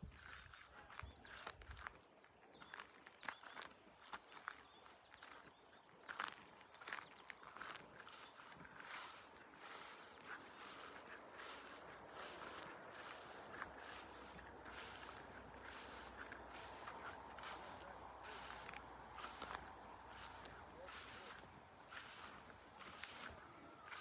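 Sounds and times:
insects droning: 0.0 - 24.0
footsteps walking: 6.1 - 24.0.

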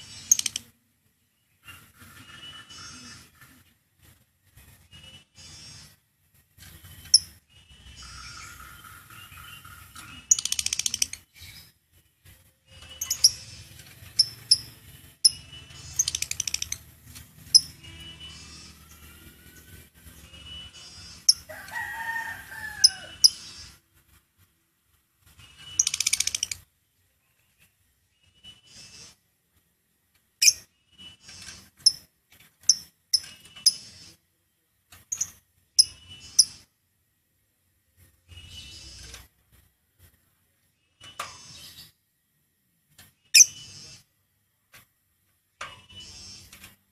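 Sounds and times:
lovebird chirping: 0.0 - 0.7, 6.7 - 21.6, 25.4 - 26.6, 35.1 - 36.7.

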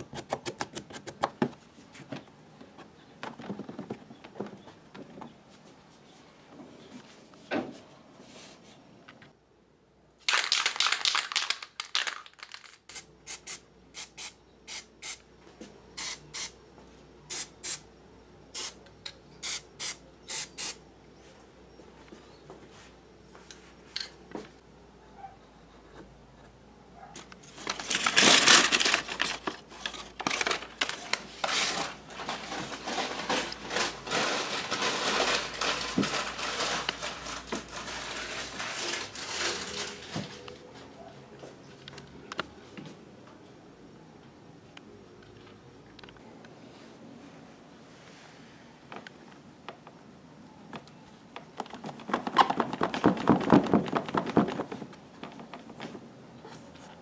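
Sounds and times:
spray paint can hissing: 12.6 - 15.2, 16.0 - 16.6, 17.3 - 17.8, 18.5 - 18.8, 19.4 - 20.8.

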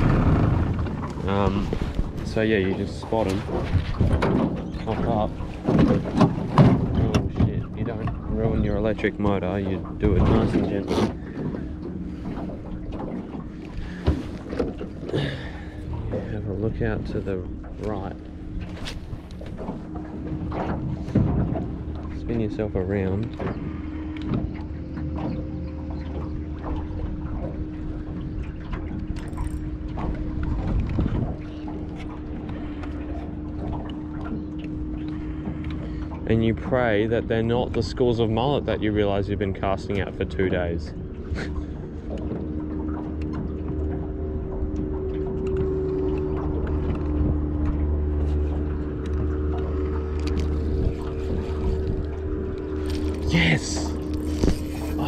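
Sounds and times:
wind and water rumble: 0.0 - 55.0.

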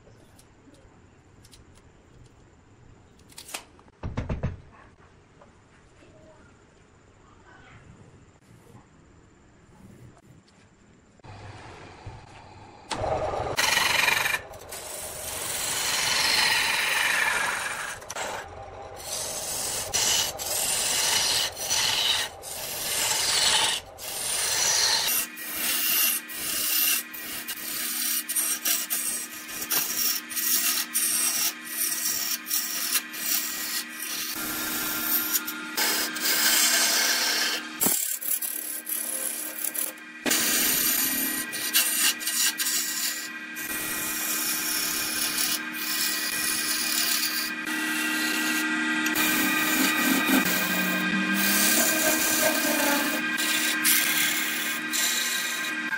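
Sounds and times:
lathe motor hum: 11.3 - 55.9
tool scraping wood on lathe: 11.6 - 55.9.

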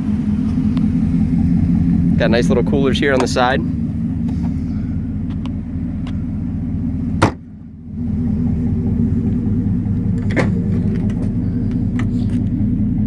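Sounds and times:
car engine idling: 0.0 - 13.0
cargo lid slamming shut: 7.2 - 7.4.

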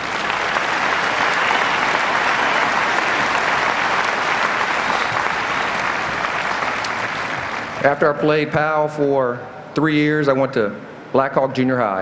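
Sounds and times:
large crowd applauding: 0.0 - 8.1.

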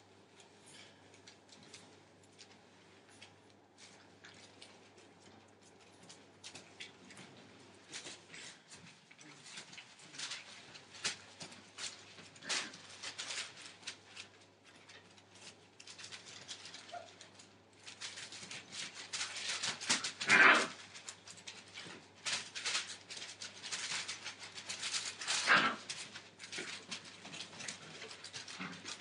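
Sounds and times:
puppies scampering on newspaper: 0.0 - 29.0
paper crinkling and rustling: 0.7 - 29.0
puppy yelp: 16.8 - 17.3.

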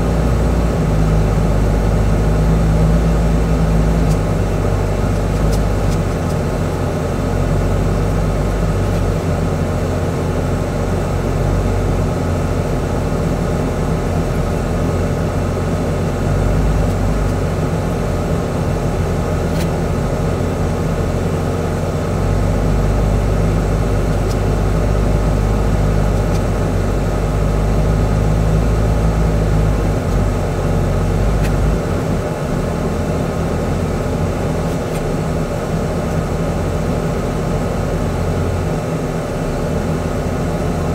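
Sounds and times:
truck diesel engine droning: 0.0 - 40.9
tyres on gravel road noise: 0.5 - 10.6.

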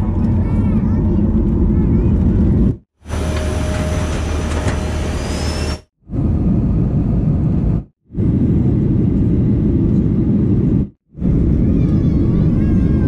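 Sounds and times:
jet cabin engine and airflow rumble: 6.2 - 13.0.

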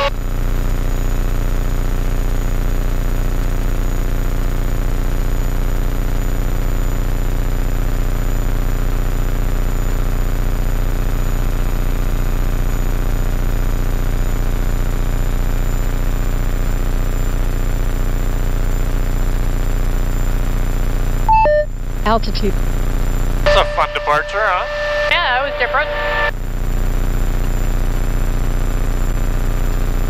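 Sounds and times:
thin high whine: 23.5 - 26.3.

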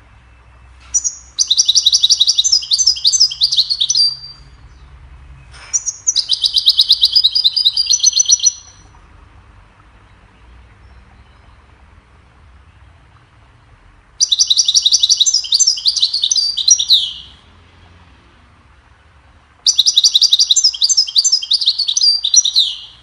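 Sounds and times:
goldfinch singing trills: 0.4 - 5.0, 5.7 - 9.0, 14.2 - 17.5, 19.6 - 23.0.

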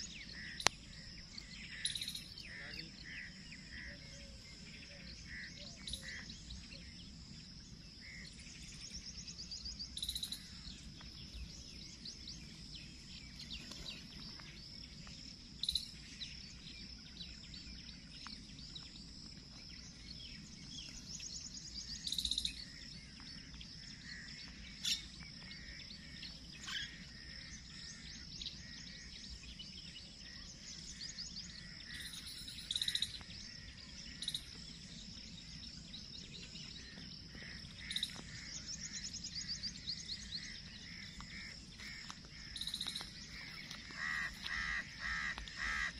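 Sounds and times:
birds chirping and calling: 0.0 - 45.9
sharp loud bird call: 40.9 - 45.9.

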